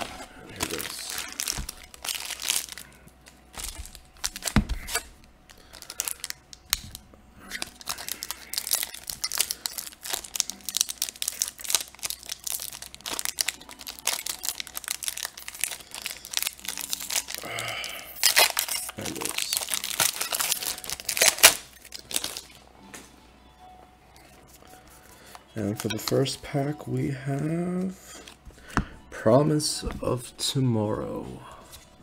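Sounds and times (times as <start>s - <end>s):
cards rustling and flicking: 0.0s - 2.8s
foil wrapper crinkling and tearing: 0.0s - 22.6s.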